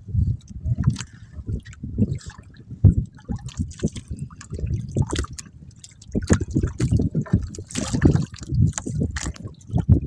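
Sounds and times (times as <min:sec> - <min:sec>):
water splashing against boat: 0:00.0 - 0:10.0
wet net dribbling water: 0:06.1 - 0:09.9.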